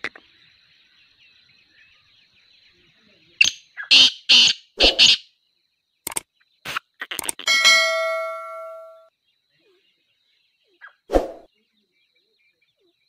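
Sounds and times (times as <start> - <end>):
bird harsh grating calls: 3.4 - 5.2
faint steady high tone: 7.5 - 9.1.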